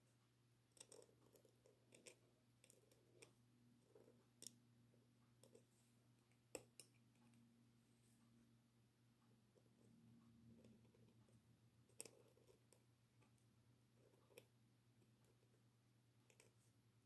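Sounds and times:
pen nib scratching on paper: 9.6s - 12.9s.

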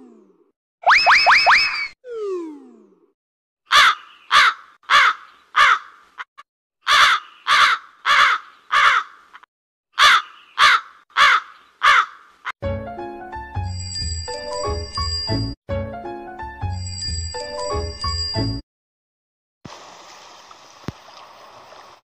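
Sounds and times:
crow cawing: 3.7s - 9.4s, 10.0s - 12.5s.

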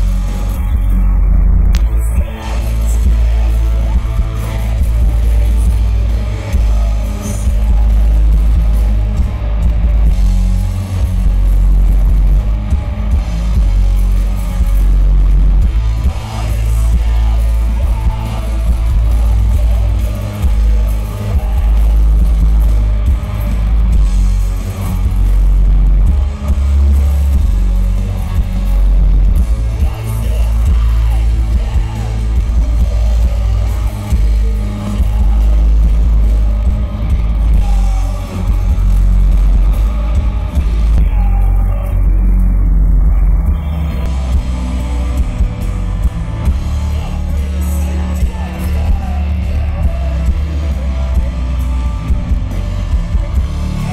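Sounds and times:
bass guitar: 0.0s - 53.9s
distorted electric guitars: 0.0s - 53.9s
person singing: 10.6s - 42.5s, 43.4s - 53.9s.

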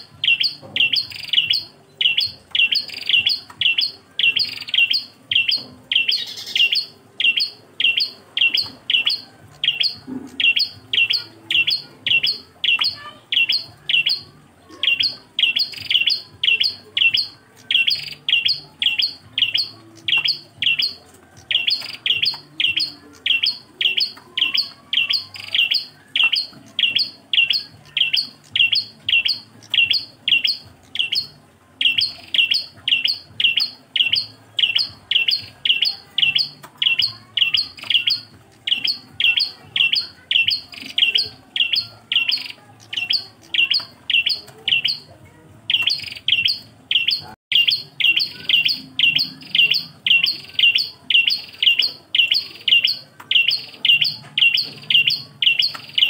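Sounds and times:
bird chirping repeated phrase: 45.7s - 56.0s.

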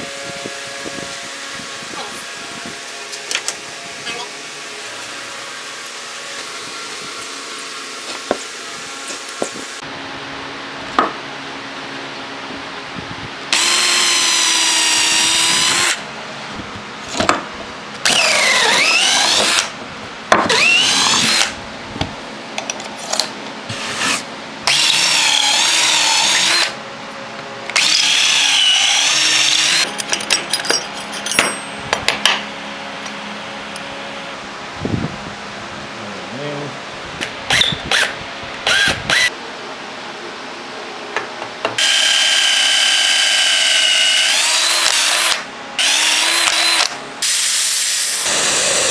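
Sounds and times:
power drill whining into wood: 13.5s - 16.0s, 18.0s - 19.7s, 20.5s - 21.6s, 24.7s - 26.8s, 27.7s - 29.9s, 37.5s - 39.3s, 41.8s - 48.9s.

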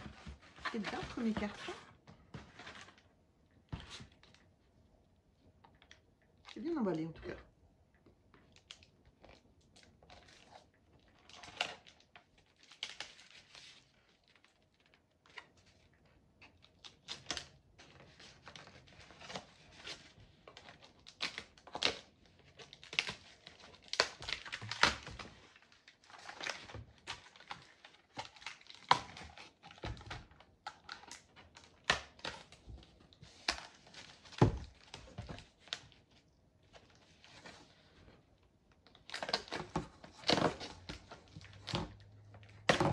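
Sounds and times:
cardboard rustling and tapping: 0.0s - 3.0s.

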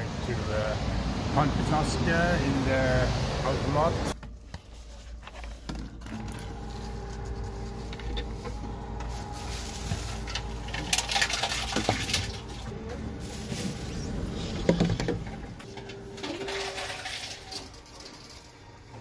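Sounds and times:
bottles clicking and rattling: 10.2s - 12.9s, 14.4s - 18.6s.

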